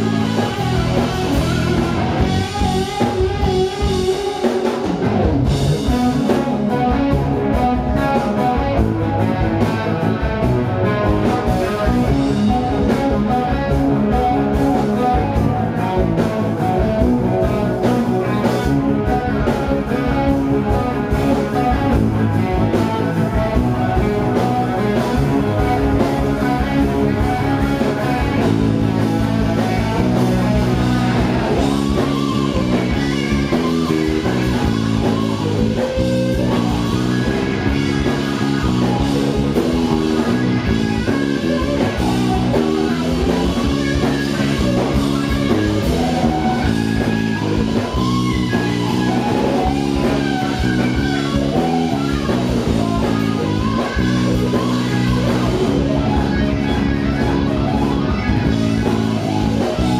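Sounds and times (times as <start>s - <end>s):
blues-rock band playing: 0.0s - 59.9s
electric guitar: 0.0s - 59.9s
drum beat: 22.0s - 59.9s.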